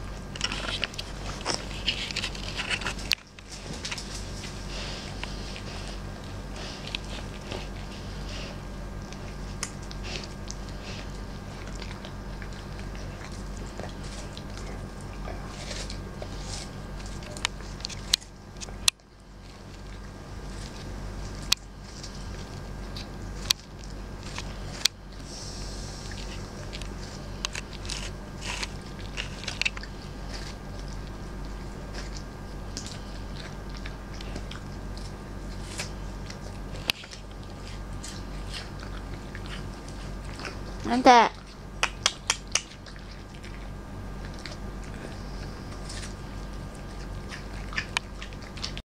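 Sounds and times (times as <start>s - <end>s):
dog crunching a pear: 0.0s - 48.8s
steady low hum: 0.0s - 48.8s
teeth clicking: 41.8s - 43.6s.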